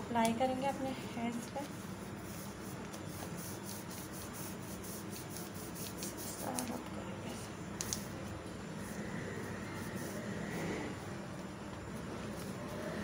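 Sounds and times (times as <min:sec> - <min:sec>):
hand rubbing wax strip: 0:01.3 - 0:06.9.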